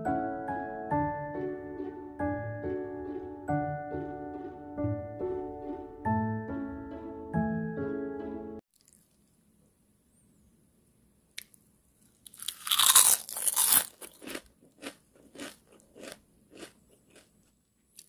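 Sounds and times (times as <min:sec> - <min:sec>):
crunchy biting and chewing: 0:12.1 - 0:18.0.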